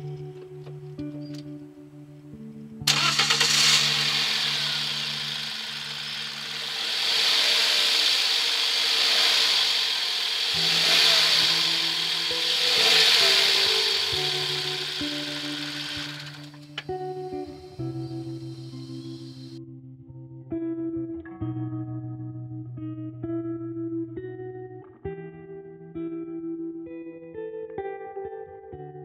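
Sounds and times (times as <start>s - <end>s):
background music: 0.0s - 6.8s, 10.5s - 20.0s
car engine starting and running: 2.9s - 19.6s.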